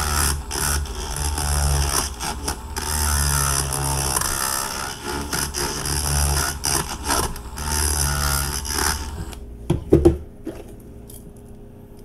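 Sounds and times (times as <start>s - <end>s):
rotary tool grinding metal: 0.0s - 9.4s.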